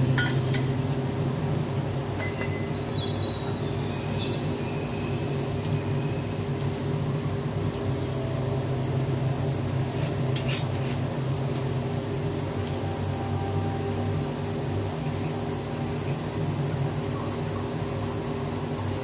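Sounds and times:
kitchen appliance humming: 0:00.0 - 0:19.0
glass bottle clink: 0:02.2 - 0:02.7.

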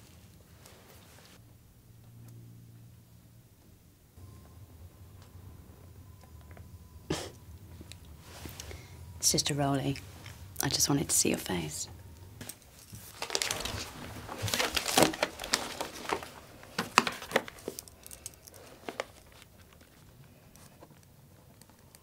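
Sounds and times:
crinkling handling noise: 0:07.6 - 0:09.0, 0:11.6 - 0:22.0.

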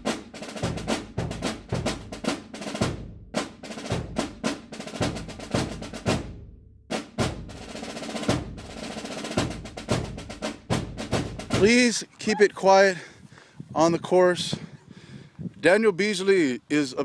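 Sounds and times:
music with fast drum beat: 0:00.0 - 0:11.9.

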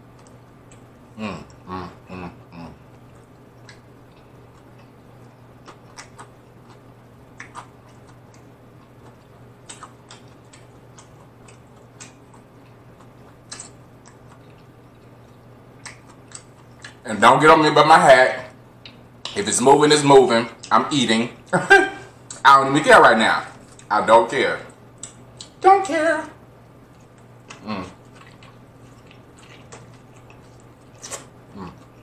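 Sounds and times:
faint low hum: 0:00.0 - 0:32.0
wet chewing clicks and smacks: 0:02.9 - 0:17.0, 0:25.0 - 0:25.6, 0:26.9 - 0:32.0.

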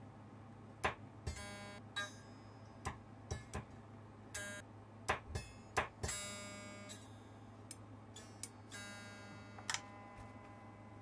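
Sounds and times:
pitched ringing: 0:01.3 - 0:03.5, 0:05.4 - 0:11.0.

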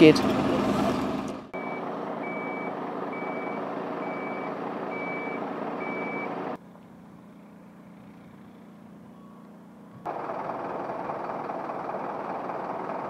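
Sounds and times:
engine humming: 0:00.0 - 0:13.0
reversing alarm beeping: 0:01.6 - 0:06.4.

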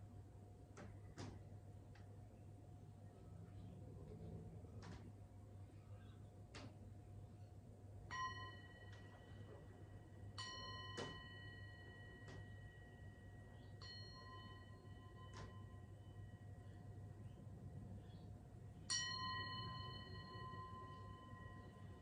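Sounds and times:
singing bowl ringing: 0:08.1 - 0:17.3, 0:18.7 - 0:22.0.

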